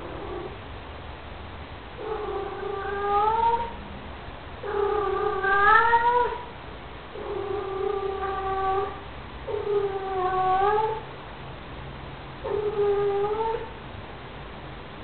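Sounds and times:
cat yowling: 0:02.0 - 0:03.8, 0:04.6 - 0:06.5, 0:07.2 - 0:11.0, 0:12.4 - 0:13.7.

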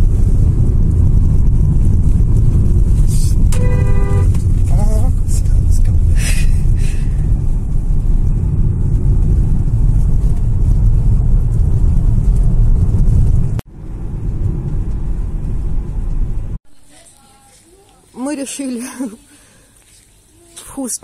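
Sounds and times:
car interior driving rumble: 0:00.0 - 0:16.6.

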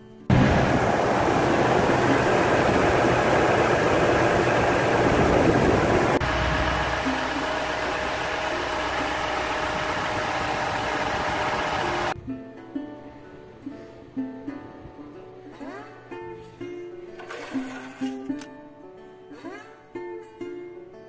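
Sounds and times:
truck engine idling: 0:00.3 - 0:12.2.

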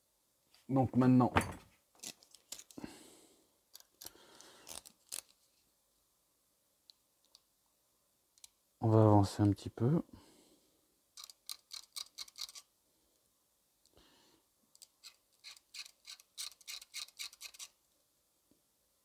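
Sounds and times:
knife scraping plastic part: 0:11.2 - 0:12.6, 0:14.8 - 0:17.8.

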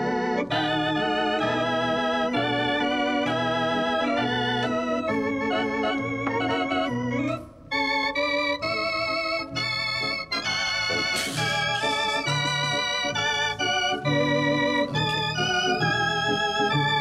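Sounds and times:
organ music: 0:00.0 - 0:17.0.

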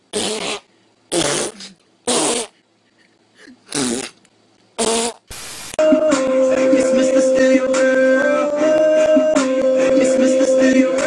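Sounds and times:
fart noises: 0:00.1 - 0:02.6, 0:03.6 - 0:04.2, 0:04.8 - 0:05.3.

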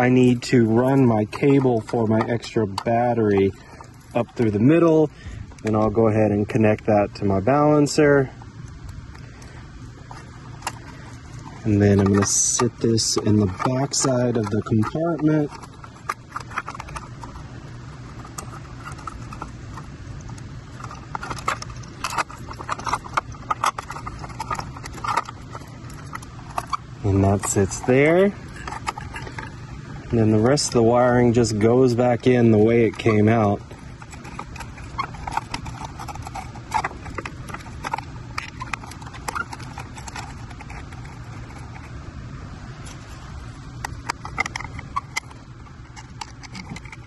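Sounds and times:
low background noise: 0:00.0 - 0:47.0
plastic connectors clicking: 0:43.8 - 0:47.0.

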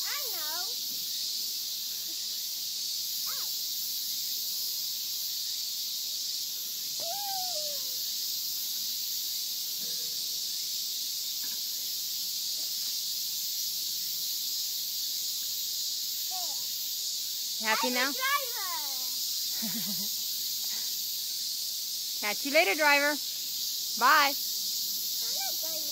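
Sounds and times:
insect chorus hiss: 0:00.0 - 0:25.9
child squealing: 0:03.3 - 0:03.5, 0:07.0 - 0:08.0.

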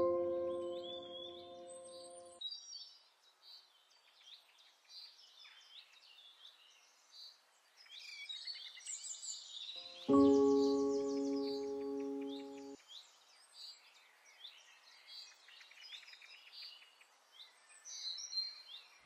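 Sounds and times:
background music chord: 0:00.0 - 0:02.4, 0:10.0 - 0:12.8.

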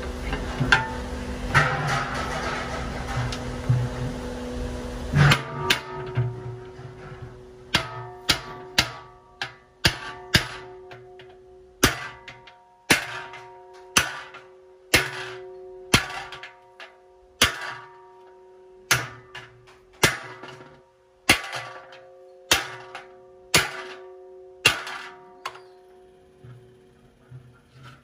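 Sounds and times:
metallic ringing: 0:00.0 - 0:28.0
hammer striking steel punch: 0:05.1 - 0:07.0, 0:07.7 - 0:25.7.

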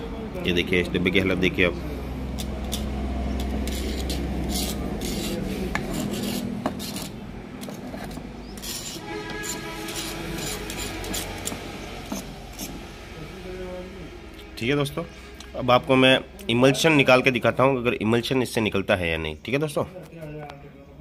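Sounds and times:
brush handle scraping paint: 0:02.7 - 0:12.8.

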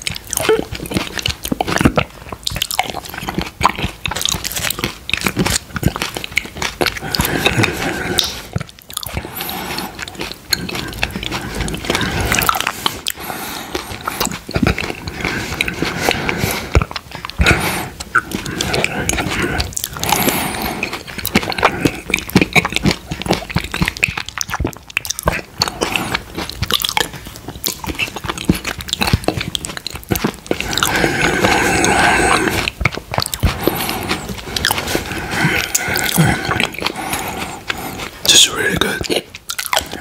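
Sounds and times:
mouth clicks and lip smacks: 0:00.0 - 0:40.0
wet eating sounds: 0:00.0 - 0:40.0.

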